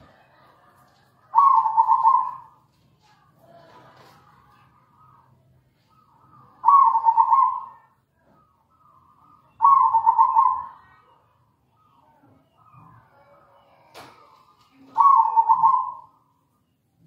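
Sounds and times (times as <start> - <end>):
dove cooing: 1.3 - 2.6, 5.9 - 11.0, 14.4 - 16.2.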